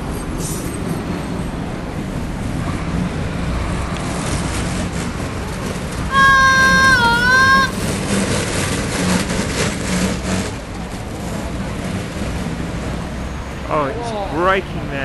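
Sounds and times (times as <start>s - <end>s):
street traffic rumble: 0.0s - 15.0s
high-pitched held tone: 6.1s - 7.7s.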